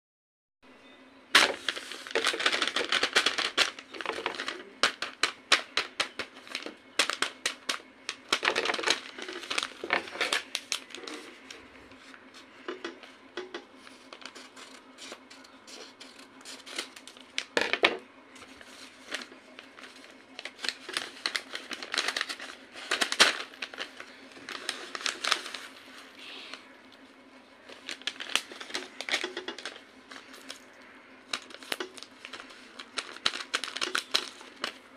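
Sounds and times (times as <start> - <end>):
paper crinkling and rustling: 1.3 - 34.9.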